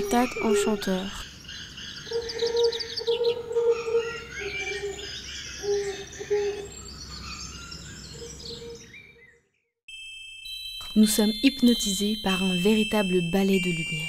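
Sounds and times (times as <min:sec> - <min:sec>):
birds chirping and singing: 0:00.0 - 0:09.6
low steady bird call: 0:00.0 - 0:09.6.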